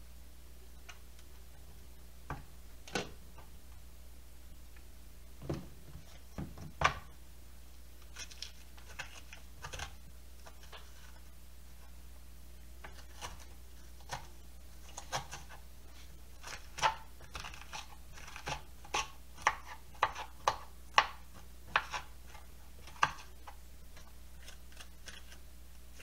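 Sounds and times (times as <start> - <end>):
knife scraping squash pulp: 8.0 - 11.3, 12.8 - 20.6, 21.3 - 26.0.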